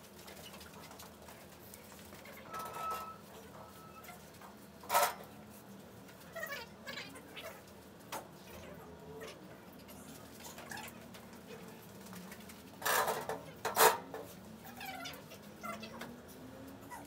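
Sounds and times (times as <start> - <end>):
faint squeaks: 2.1 - 4.3.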